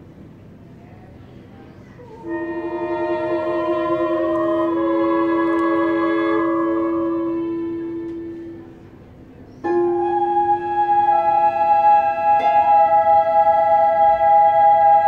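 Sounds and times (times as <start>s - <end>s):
flute and clarinet chamber music: 2.1s - 15.0s.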